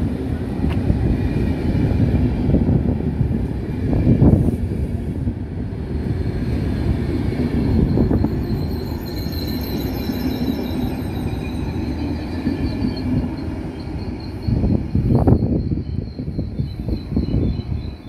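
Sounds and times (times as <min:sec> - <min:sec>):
train wheels rumbling on rail: 0:00.0 - 0:18.0
high wheel squeal: 0:07.3 - 0:18.0.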